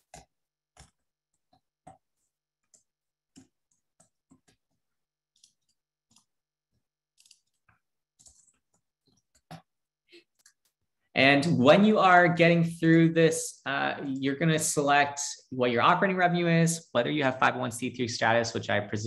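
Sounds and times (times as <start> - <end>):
computer keyboard typing: 7.2 - 10.7.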